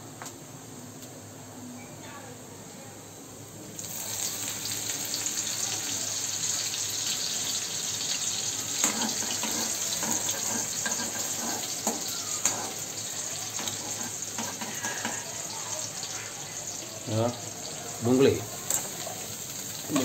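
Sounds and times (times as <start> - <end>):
onion sizzling in hot oil: 3.6 - 20.0
metal spoon scraping pan: 8.8 - 12.8, 13.6 - 15.2.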